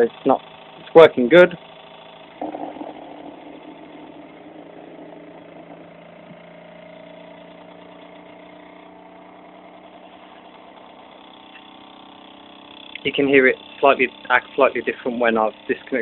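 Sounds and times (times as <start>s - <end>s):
generator whirring hum: 0.0s - 16.0s.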